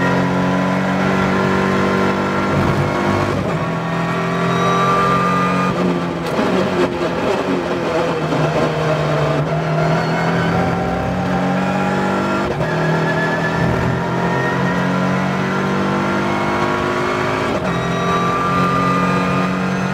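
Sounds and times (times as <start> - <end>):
car engine accelerating: 0.0 - 19.9.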